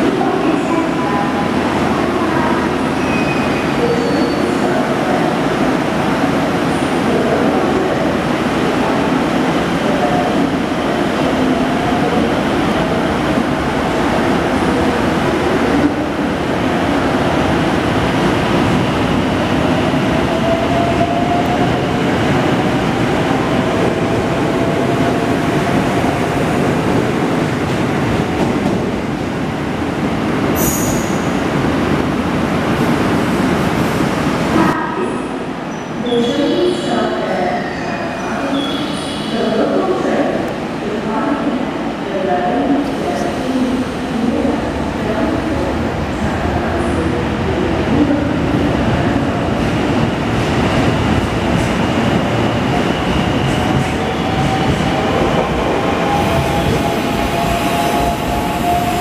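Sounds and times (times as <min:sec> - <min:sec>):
train wheels rumbling on rail: 0:42.8 - 0:59.0.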